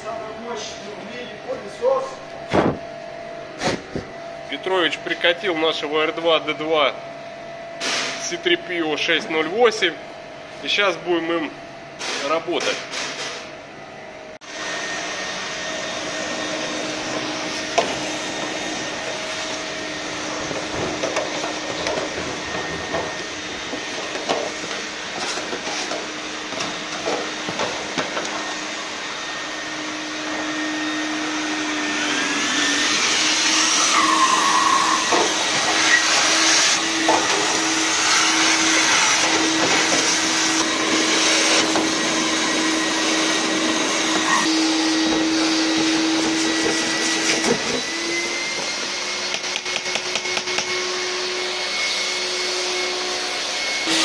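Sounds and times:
vacuum cleaner motor hum: 13.8 - 54.0.

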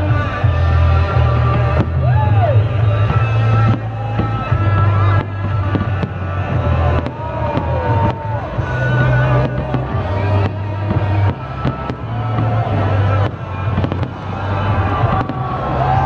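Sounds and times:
music with pulsing bass: 0.0 - 16.0
fireworks bangs: 0.1 - 16.0.

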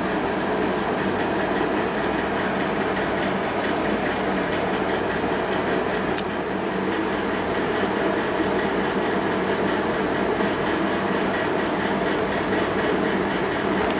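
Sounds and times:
steady mechanical hum with hiss: 0.0 - 13.9.

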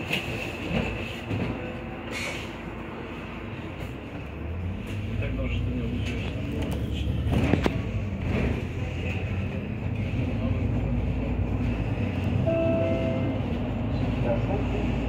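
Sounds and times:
bus drivetrain and road rumble: 0.0 - 15.0
short steady tone: 12.5 - 13.6.

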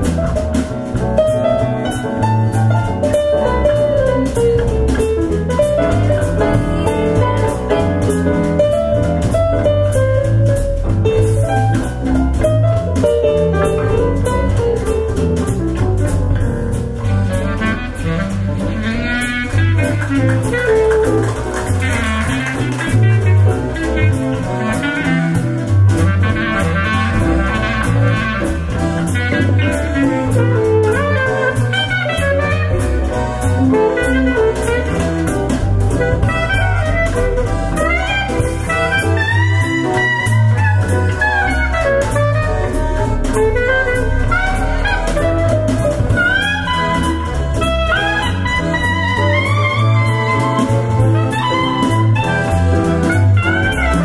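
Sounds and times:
jazz music: 0.0 - 54.0.

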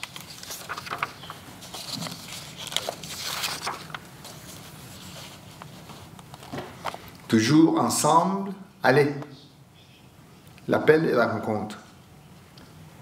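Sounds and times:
soft rustling: 0.0 - 7.1
faint low room hum: 0.0 - 13.0.

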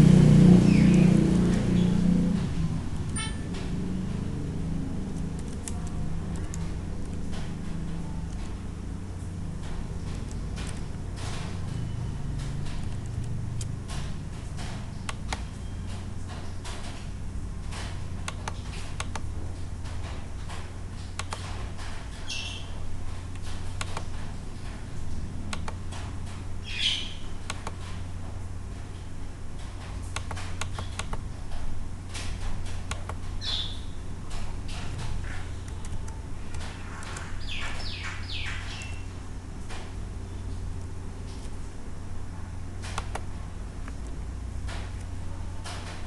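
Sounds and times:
steady low hum: 0.0 - 46.0
computer mouse clicks: 5.2 - 7.4, 17.8 - 19.3, 21.2 - 21.5, 23.3 - 24.1, 25.5 - 25.8, 27.4 - 27.8, 30.1 - 31.2, 32.9 - 33.2, 35.7 - 37.3, 42.8 - 44.1.

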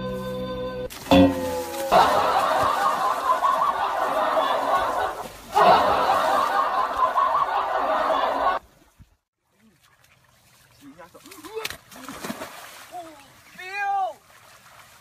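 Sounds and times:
crowd laughing: 1.8 - 8.6.

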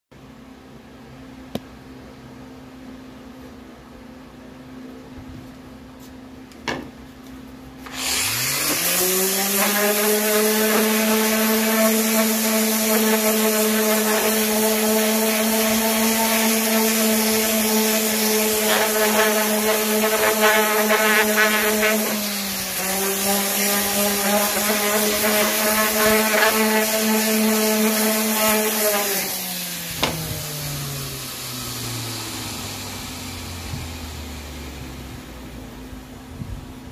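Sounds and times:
orbital sander sanding wood: 7.8 - 35.6.

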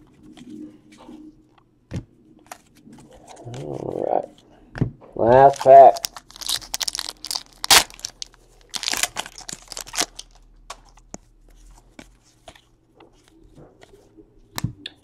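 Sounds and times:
wrapper tearing and crinkling: 5.5 - 10.4.

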